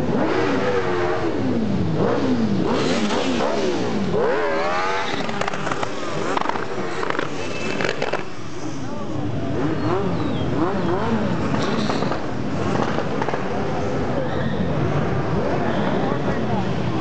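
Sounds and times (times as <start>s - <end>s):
motorcycles revving past: 0.0s - 8.5s.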